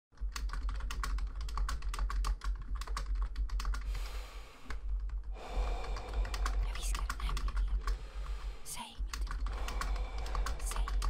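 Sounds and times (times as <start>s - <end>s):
rapid typing on keyboard: 0.2s - 4.0s, 4.7s - 11.0s
steady low hum: 2.6s - 11.0s.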